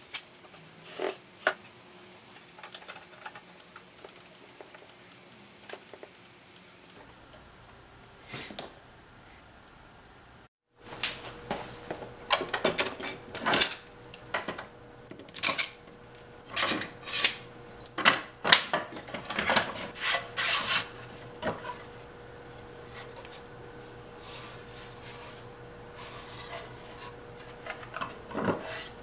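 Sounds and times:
metal clamps scraping and clicking: 16.5s - 17.4s.

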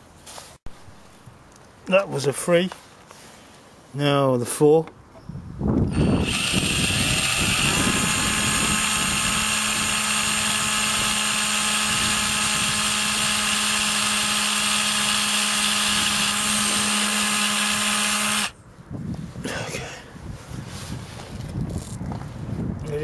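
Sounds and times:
cordless drill whining: 5.9s - 18.5s.

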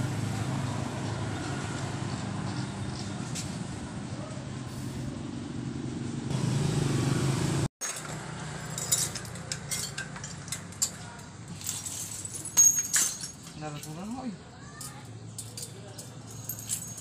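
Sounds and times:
faint engine hum: 0.0s - 11.5s.

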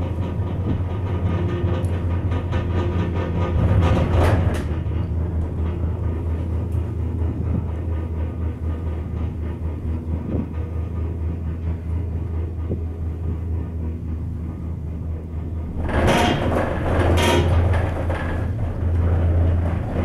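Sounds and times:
rattling with clicks: 0.0s - 6.9s, 15.7s - 20.0s
gondola cabin hum and rumble: 0.0s - 20.0s.

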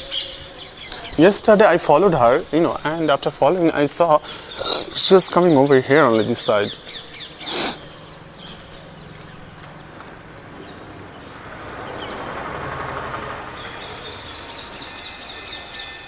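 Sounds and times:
birds chirping: 0.0s - 16.0s
vehicle passing by: 7.8s - 14.9s.

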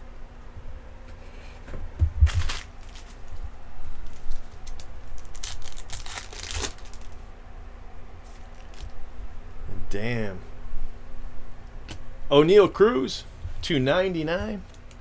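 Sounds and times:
foil wrapper crinkling and tearing: 2.3s - 3.4s, 4.0s - 7.2s, 8.4s - 9.0s.

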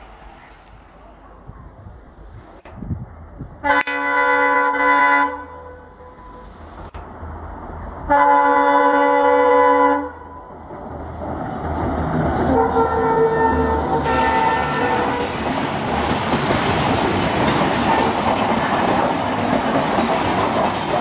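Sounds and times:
train passing at speed: 0.0s - 21.0s
locomotive horn: 3.6s - 6.5s, 8.1s - 10.4s, 12.4s - 15.3s.

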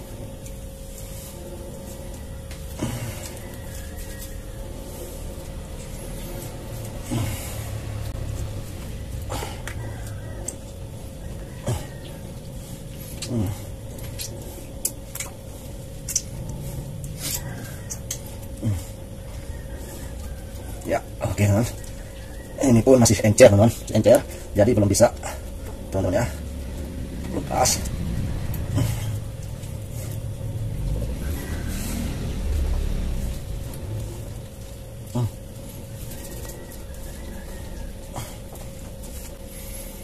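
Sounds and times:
faint steady hum: 0.0s - 40.0s
low rumble: 0.0s - 40.0s
low falling tones: 24.5s - 35.8s.

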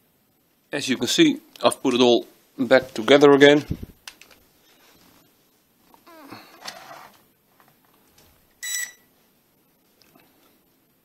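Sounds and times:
short electronic beep: 8.6s - 9.1s.

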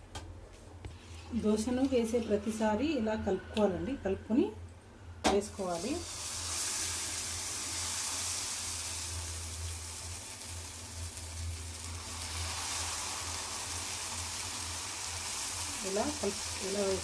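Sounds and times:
low hum: 0.8s - 6.1s
batter sizzling on a hot pan: 5.5s - 17.0s.

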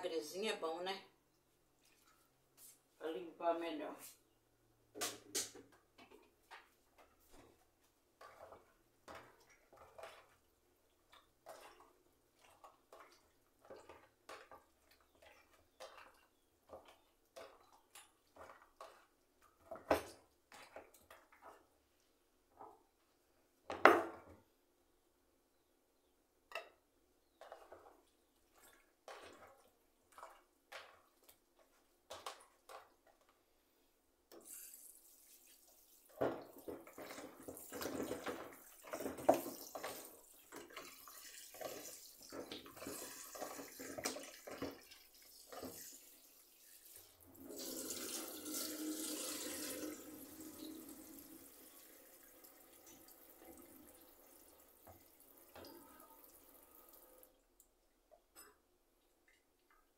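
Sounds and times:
water running into sink: 34.4s - 57.4s
dishes clattering under water: 58.2s - 58.7s.

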